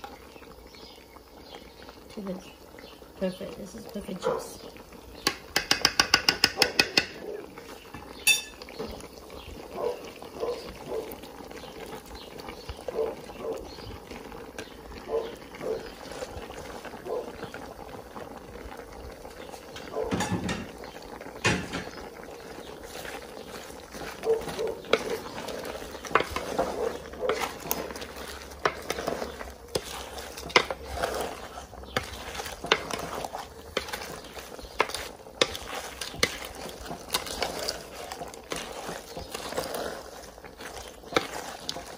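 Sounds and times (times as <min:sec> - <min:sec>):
sauce simmering: 0:00.0 - 0:41.9
wooden spoon knocking and scraping pot: 0:05.1 - 0:09.1, 0:19.2 - 0:41.9.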